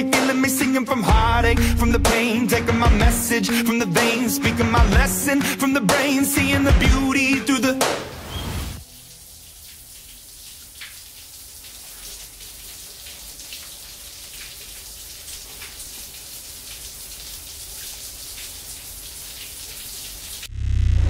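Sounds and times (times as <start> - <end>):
hiss of falling water: 8.1 - 20.5
water drops splashing: 8.8 - 20.2.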